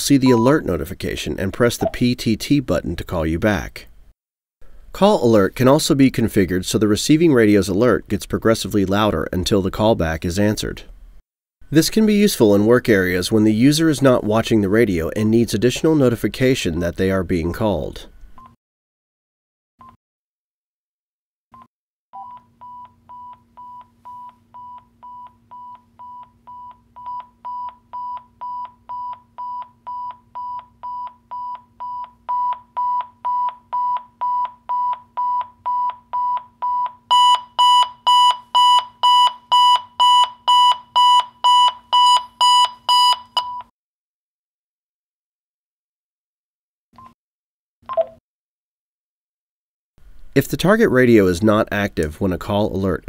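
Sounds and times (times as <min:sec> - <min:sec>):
radio alert short high beeps: 0:00.2 - 0:00.6.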